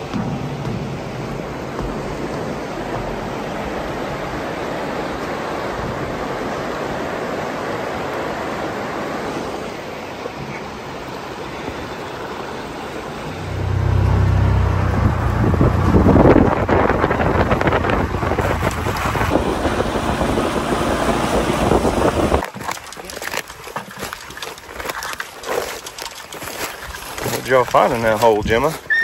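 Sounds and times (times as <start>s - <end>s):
rushing floodwater: 0.0s - 29.0s
low-pitched vehicle engine: 13.2s - 22.4s.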